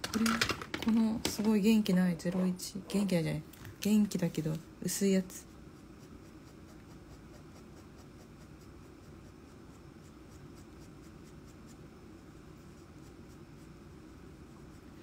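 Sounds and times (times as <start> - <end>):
pen scratching on paper: 5.4 - 15.0.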